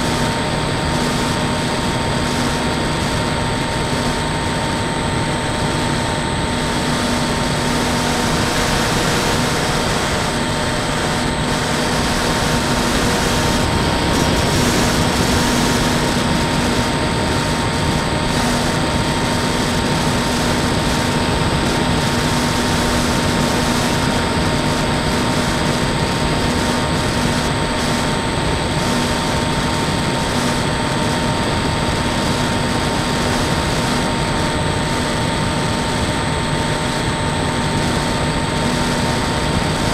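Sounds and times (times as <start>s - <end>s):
electric motor and propeller whine: 0.0s - 39.9s
wind rushing on microphone: 0.0s - 39.9s.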